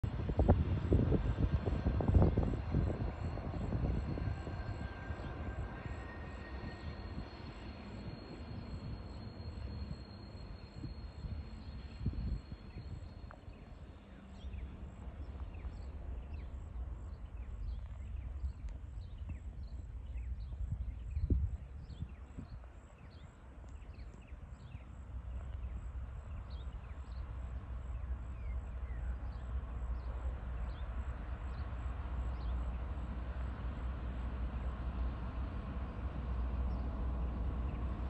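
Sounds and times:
wind buffeting microphone: 0:00.0 - 0:27.1
distant freight train rumble: 0:00.0 - 0:38.0.

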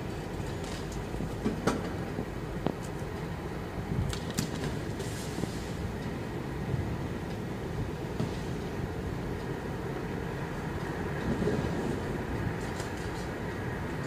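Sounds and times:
trolleys and cartons rattling: 0:00.0 - 0:02.2.

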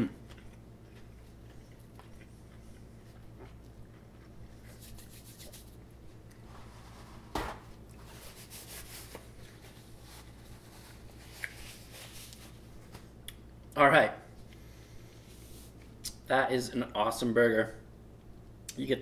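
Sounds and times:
low steady hum: 0:00.0 - 0:19.0
hands rubbing paper napkin: 0:04.6 - 0:05.8, 0:08.0 - 0:12.6.

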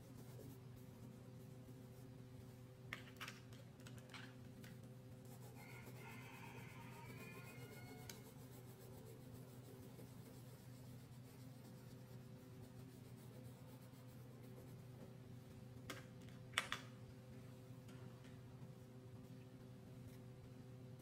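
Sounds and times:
steady low hum: 0:00.0 - 0:03.0, 0:08.1 - 0:21.0
crayon scratching on paper: 0:07.2 - 0:14.9.

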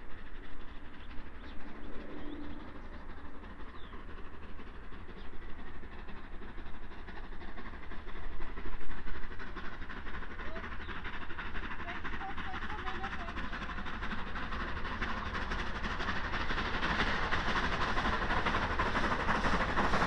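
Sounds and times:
distant steam locomotive rumble: 0:00.0 - 0:20.0
bird chirping: 0:00.4 - 0:04.2.

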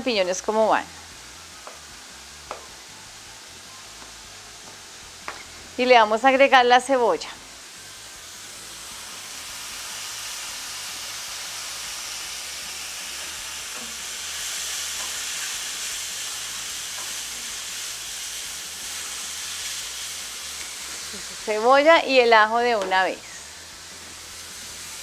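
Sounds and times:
vegetables sizzling in a frying pan: 0:00.0 - 0:25.0
spatula stirring in a pan: 0:13.0 - 0:21.4.

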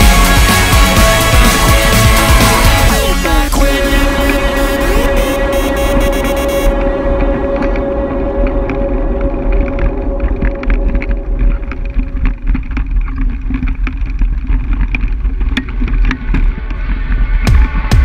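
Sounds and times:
electronic music with kick drum: 0:00.0 - 0:12.2, 0:17.3 - 0:18.0.

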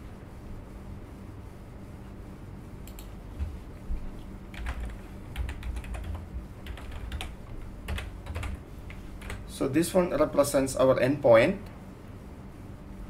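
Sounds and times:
low steady hum: 0:00.0 - 0:13.0
typing on computer keyboard: 0:04.5 - 0:08.6, 0:09.2 - 0:09.4.

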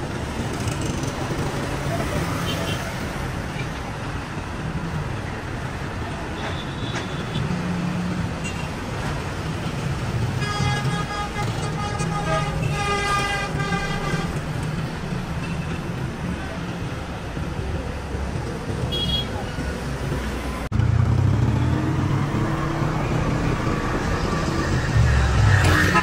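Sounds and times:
road traffic: 0:00.0 - 0:26.0
vehicle horn: 0:10.4 - 0:14.4, 0:18.9 - 0:19.3, 0:25.6 - 0:26.0.

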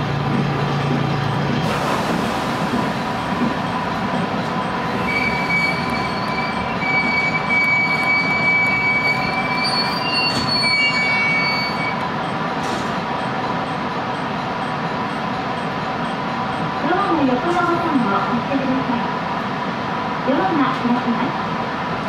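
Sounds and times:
train running-gear rumble: 0:00.0 - 0:22.0
train brakes squealing: 0:04.5 - 0:12.0.

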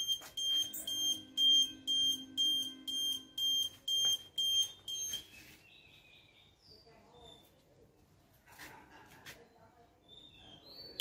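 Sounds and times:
high piercing buzzer beeps: 0:00.0 - 0:05.3.

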